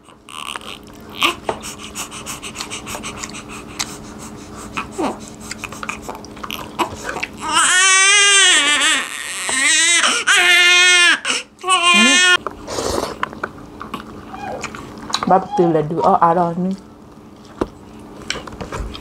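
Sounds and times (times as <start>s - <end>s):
baby crying: 0.3s - 3.4s, 4.8s - 12.4s, 14.3s - 14.7s
eating clicks and smacks: 2.4s - 4.0s, 13.2s - 15.3s.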